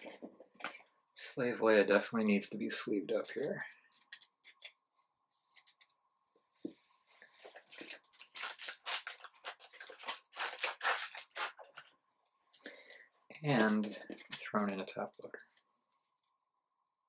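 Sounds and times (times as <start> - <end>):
plastic card sleeves rustling: 7.4 - 11.9.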